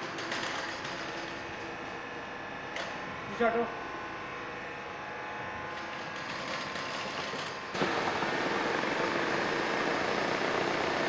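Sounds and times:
machine hum: 0:07.5 - 0:11.0.

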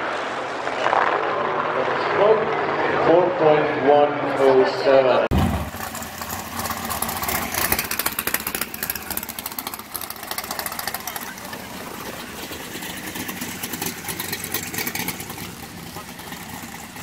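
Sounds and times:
race car engines idling: 0:05.4 - 0:17.0.

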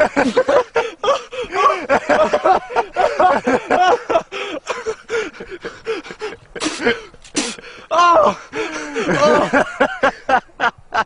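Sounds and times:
people laughing: 0:00.0 - 0:11.0
sharp breathy hisses: 0:05.3 - 0:07.8.

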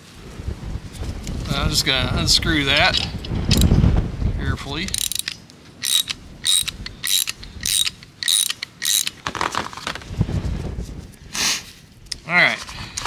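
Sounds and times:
socket ratchet clicking: 0:04.9 - 0:09.2.

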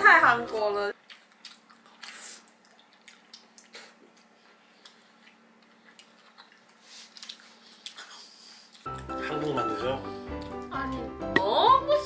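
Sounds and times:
soft chewing: 0:00.5 - 0:09.6.

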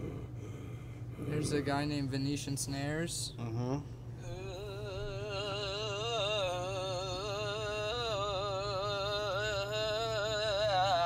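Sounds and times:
man making warbling vibration noise: 0:03.4 - 0:11.0.

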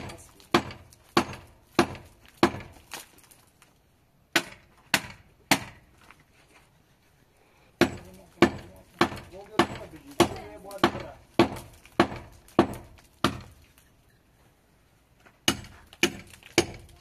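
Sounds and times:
hammer striking concrete block: 0:00.0 - 0:02.8, 0:04.3 - 0:05.8, 0:07.8 - 0:13.6, 0:15.4 - 0:17.0.

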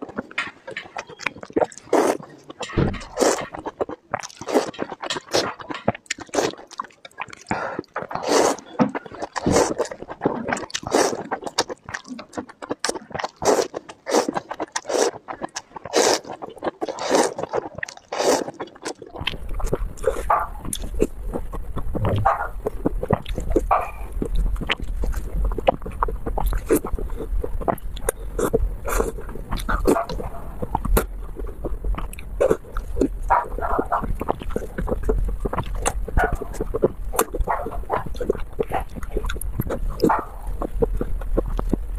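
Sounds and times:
chewing: 0:00.0 - 0:41.9
slurping noodles: 0:01.5 - 0:02.4, 0:03.1 - 0:05.6, 0:06.2 - 0:11.9, 0:12.7 - 0:41.8
steady low hum: 0:19.2 - 0:41.9.

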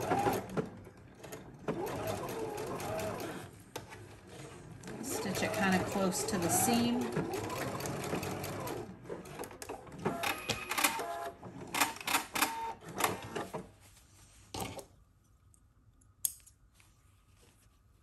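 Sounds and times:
sewing machine stitching: 0:00.0 - 0:03.5, 0:04.2 - 0:13.5.

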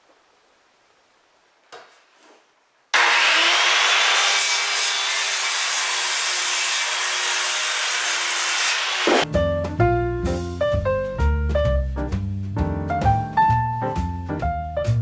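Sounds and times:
circular saw cutting wood: 0:03.0 - 0:09.3.

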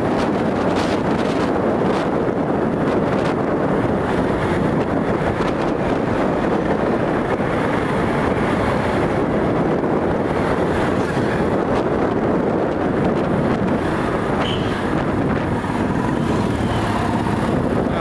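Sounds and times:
road noise: 0:00.0 - 0:18.0
wind on microphone: 0:00.0 - 0:18.0
motorcycle engine: 0:13.3 - 0:18.0.

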